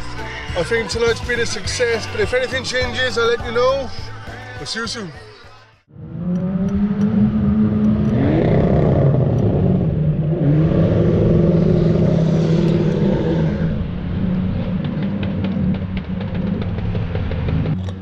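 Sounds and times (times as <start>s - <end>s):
car engines revving hard: 6.0s - 18.0s.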